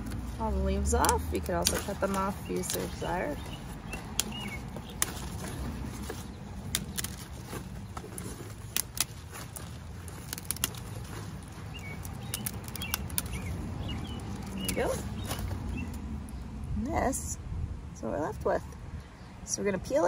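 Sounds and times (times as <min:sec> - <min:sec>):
leaf stalks snapping: 0:00.0 - 0:16.0.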